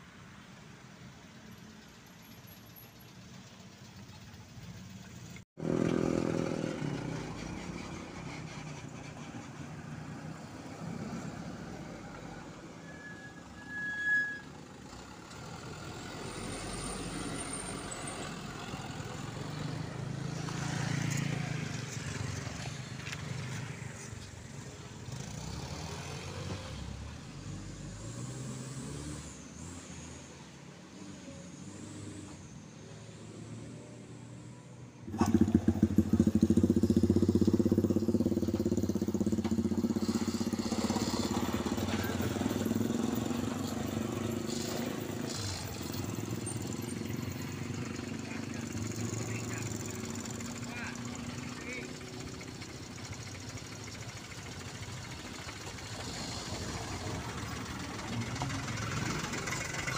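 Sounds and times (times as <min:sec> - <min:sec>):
truck diesel engines under load: 0:00.0 - 0:59.9
high squeal: 0:12.0 - 0:14.8.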